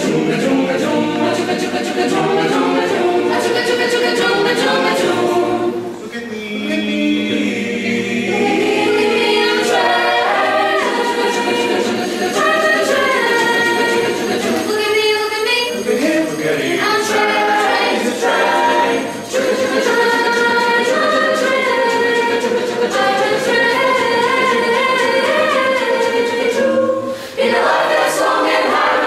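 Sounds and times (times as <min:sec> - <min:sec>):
choir singing a cappella: 0:00.0 - 0:29.0.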